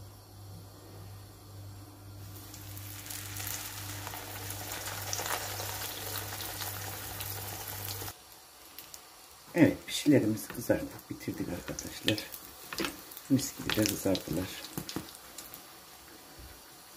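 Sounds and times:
steady low hum: 0:00.0 - 0:08.2
dough sizzling in hot oil: 0:02.2 - 0:16.9.

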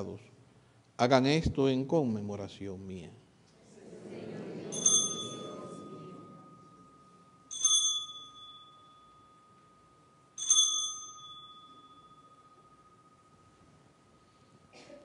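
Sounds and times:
altar bell ringing: 0:04.7 - 0:14.7.

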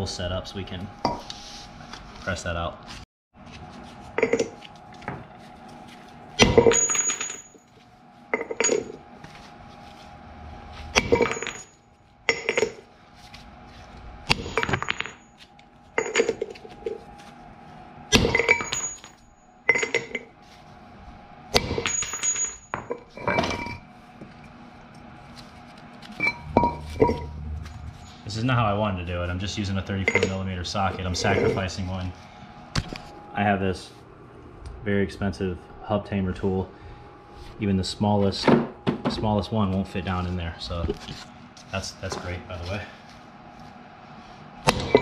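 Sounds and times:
metal tool parts clanking: 0:30.1 - 0:30.4, 0:44.7 - 0:45.0.

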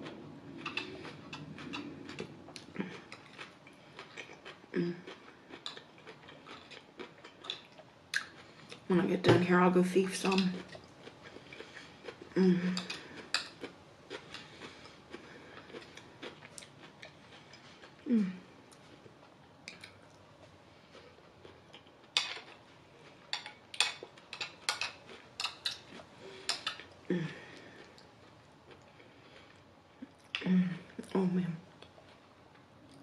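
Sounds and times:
low humming voice: 0:12.3 - 0:13.0, 0:18.1 - 0:18.6, 0:27.1 - 0:27.5, 0:30.4 - 0:31.7.

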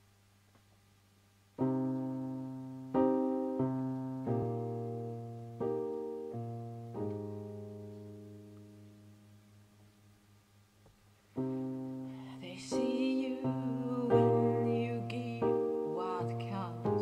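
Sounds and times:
faint low hum: 0:00.0 - 0:17.0
piano chords ringing: 0:01.6 - 0:10.5, 0:11.4 - 0:17.0.

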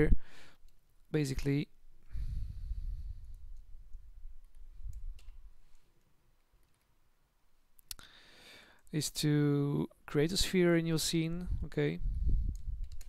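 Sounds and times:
computer mouse clicks: 0:12.5 - 0:13.0.

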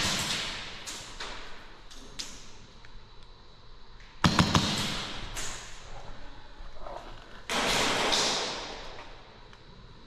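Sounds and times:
airsoft gun firing: 0:04.2 - 0:05.3.

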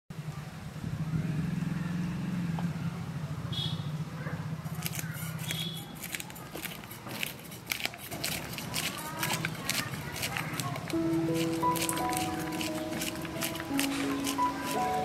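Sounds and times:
fish scraped against blade: 0:04.7 - 0:15.0.

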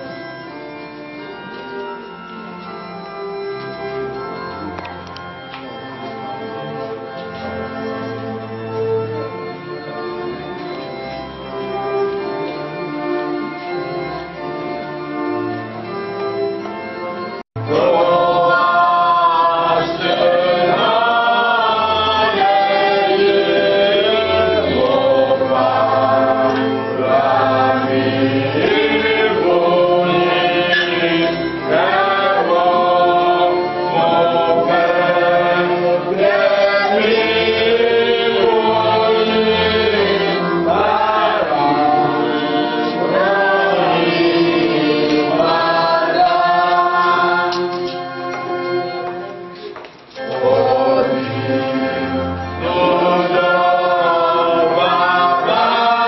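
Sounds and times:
low organ notes: 0:00.0 - 0:56.0
choir singing a hymn: 0:17.6 - 0:56.0.

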